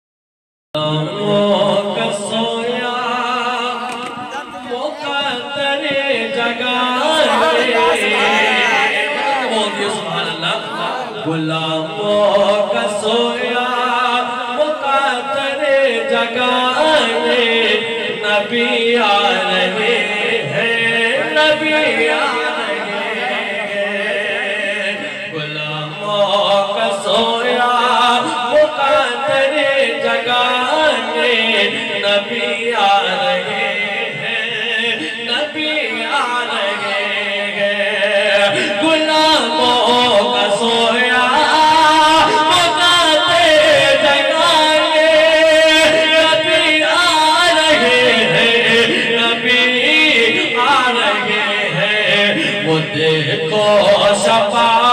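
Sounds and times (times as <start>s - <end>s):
man chanting devotional song: 0.8s - 54.9s
backing voices: 1.7s - 13.8s.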